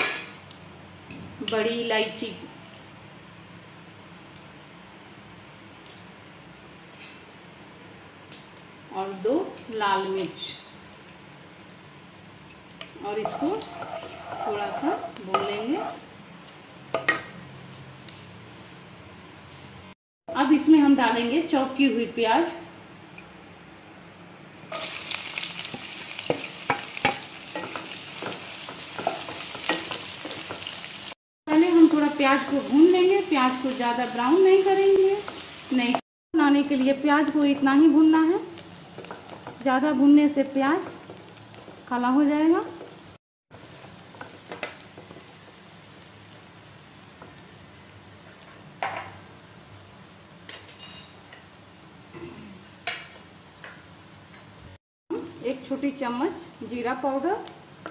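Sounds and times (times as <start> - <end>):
onions sizzling in oil: 6.6 - 19.7, 24.7 - 57.9
wooden spatula scraping pan: 13.2 - 16.0.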